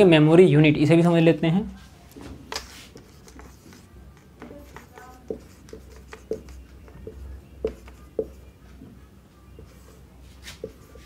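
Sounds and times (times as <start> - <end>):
marker writing on whiteboard: 2.5 - 11.0.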